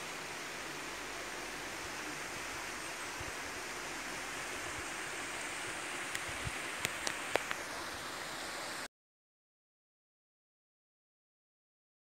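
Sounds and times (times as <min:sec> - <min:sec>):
water rushing over a weir: 0:00.0 - 0:08.9.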